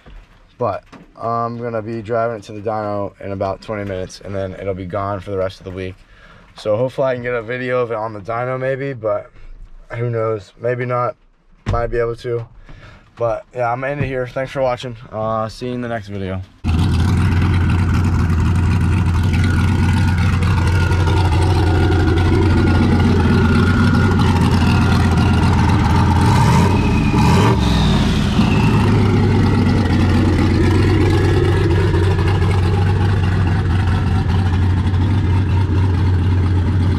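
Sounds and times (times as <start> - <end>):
truck engine running and revving: 16.6 - 36.9.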